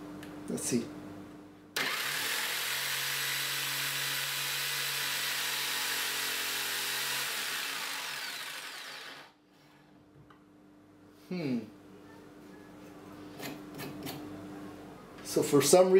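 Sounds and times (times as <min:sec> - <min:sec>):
jigsaw cutting wood: 0:01.8 - 0:09.4.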